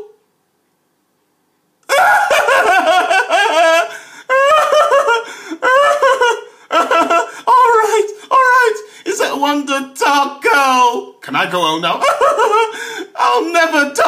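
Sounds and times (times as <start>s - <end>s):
cartoon character laughing: 1.9s - 8.8s, 12.0s - 12.8s.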